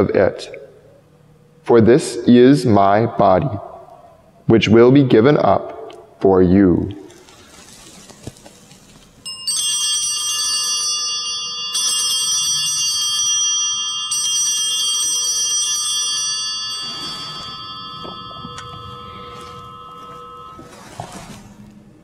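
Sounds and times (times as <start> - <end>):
altar bells ringing: 9.2 - 22.0.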